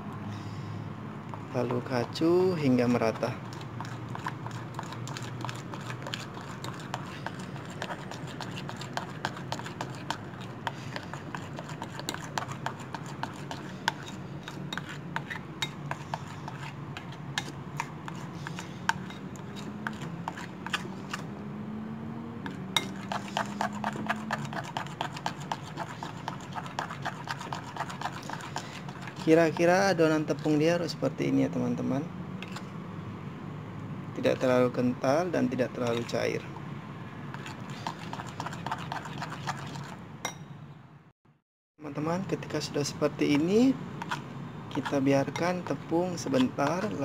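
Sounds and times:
spoon scraping ceramic bowl: 0:03.2 - 0:21.3, 0:22.4 - 0:30.6, 0:32.4 - 0:32.7, 0:35.8 - 0:36.2, 0:37.3 - 0:40.4, 0:44.0 - 0:47.0.

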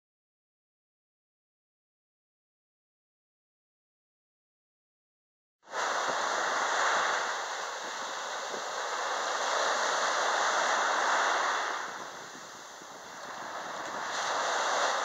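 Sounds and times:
small sea waves breaking: 0:05.7 - 0:15.0.

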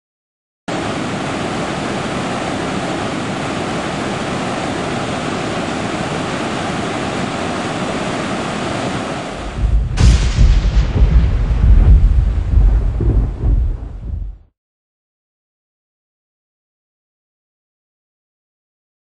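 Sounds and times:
waterfall roaring: 0:00.7 - 0:10.2
deep low rumble: 0:09.5 - 0:14.5.

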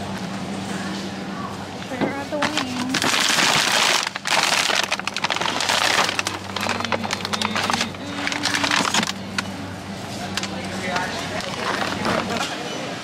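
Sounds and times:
plastic bag crinkling: 0:02.4 - 0:09.5, 0:10.2 - 0:12.4.

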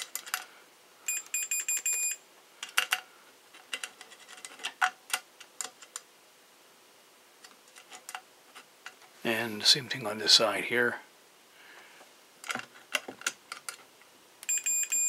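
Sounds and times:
multimeter beeping: 0:01.0 - 0:02.2, 0:14.4 - 0:15.0.

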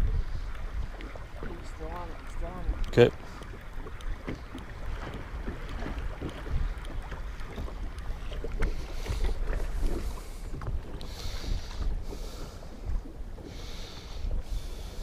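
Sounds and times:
waves slapping against boat: 0:00.0 - 0:15.0
wind buffeting microphone: 0:00.0 - 0:15.0
hissing water splashes: 0:05.7 - 0:15.0.

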